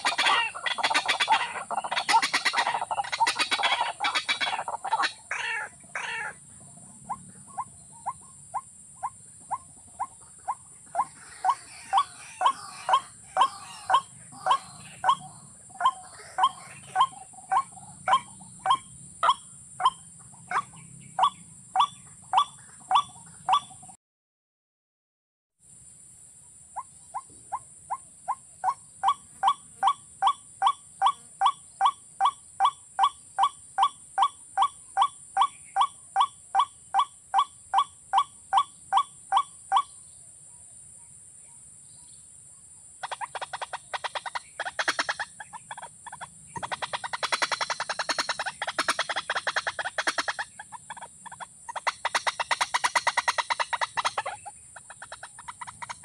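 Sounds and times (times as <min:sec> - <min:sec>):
bird calling evenly spaced notes: 0:00.0 - 0:23.9, 0:26.7 - 0:40.1, 0:43.0 - 0:56.0
bird harsh rapid pulses: 0:00.0 - 0:23.9, 0:43.0 - 0:56.0.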